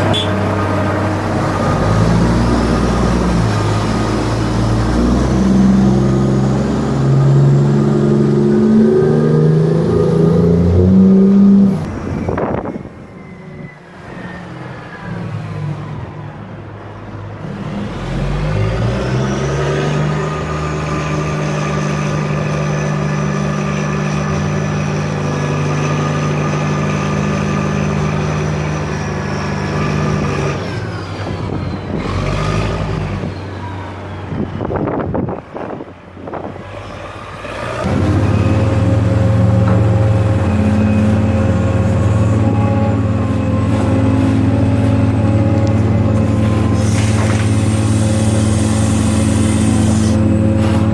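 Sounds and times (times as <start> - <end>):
crane engine drone: 0.0 - 50.9
dump truck engine revving: 0.0 - 50.9.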